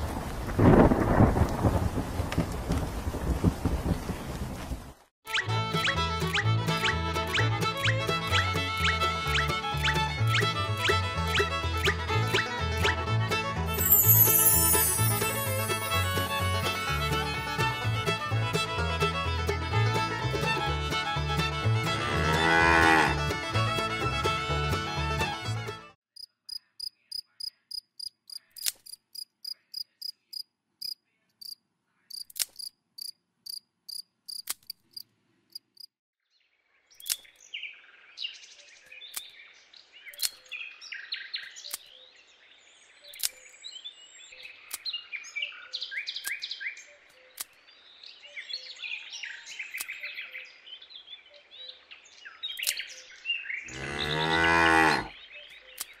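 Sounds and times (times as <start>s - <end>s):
cow mooing loudly: 21.9s - 23.3s, 53.7s - 55.2s
cricket chirping: 26.2s - 35.9s
birds chirping: 36.9s - 56.0s.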